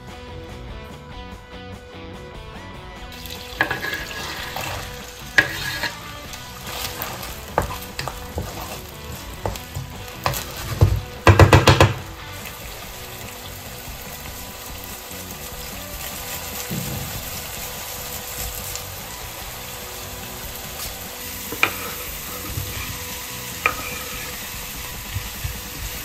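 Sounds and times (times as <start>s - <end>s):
onion sizzling in butter: 3.1s - 26.0s
wooden spatula scraping pan: 3.6s - 12.7s, 20.7s - 24.9s
loud knocks: 9.5s - 12.0s, 16.7s - 17.5s.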